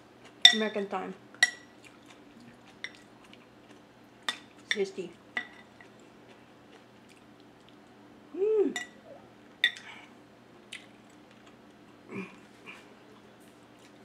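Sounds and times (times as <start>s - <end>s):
chewing soup: 1.7s - 4.7s, 5.4s - 8.0s
person humming mm: 8.3s - 9.3s, 12.1s - 12.9s.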